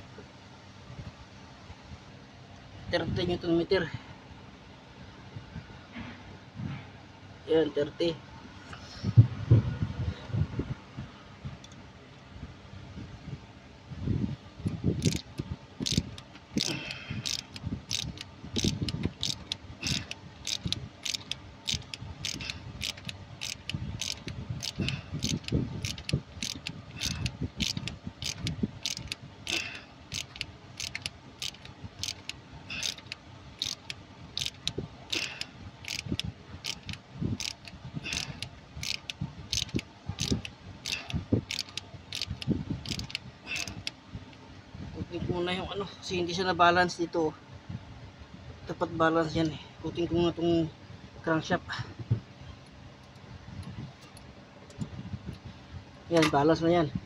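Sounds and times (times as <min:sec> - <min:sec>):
hand ratchet clicking: 0:14.7 - 0:44.0.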